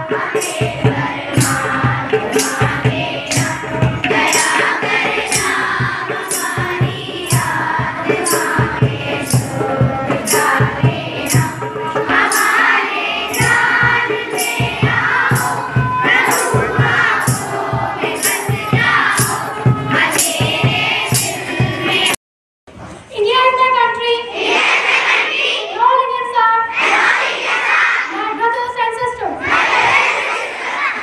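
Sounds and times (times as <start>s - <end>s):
low drum beat: 0.0s - 12.2s, 13.4s - 22.2s
children singing in unison: 0.0s - 22.2s, 24.3s - 25.8s, 26.7s - 28.1s, 29.4s - 31.0s
jingling percussion: 0.0s - 22.2s.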